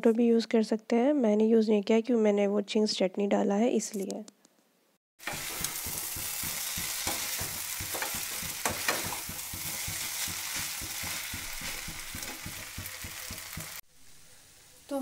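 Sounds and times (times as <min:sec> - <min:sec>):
noodles sizzling: 0:05.2 - 0:13.8
spatula tossing and scraping: 0:05.2 - 0:13.8.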